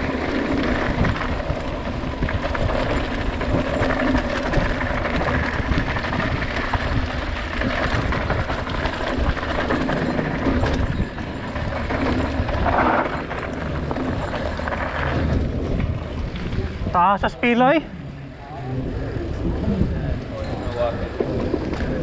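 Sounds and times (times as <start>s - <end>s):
bike rattling over bumps: 0.0s - 22.0s
bike tyres on dirt trail: 0.0s - 22.0s.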